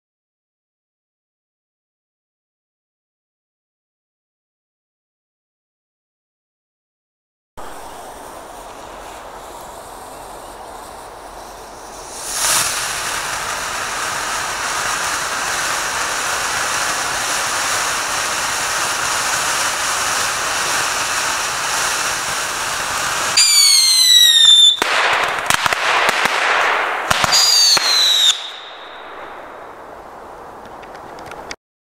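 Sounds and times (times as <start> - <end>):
firework whistles: 7.6 - 30.3
firework fountain hissing: 7.6 - 31.5
firework crackling: 7.6 - 31.6.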